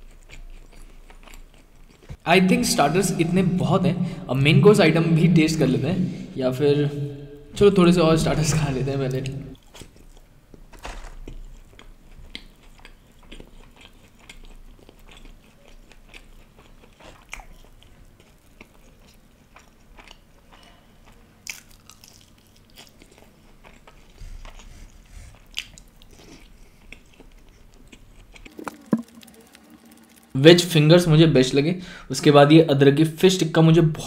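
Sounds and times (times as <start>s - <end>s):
man chewing food: 0.0s - 2.2s, 9.6s - 30.4s.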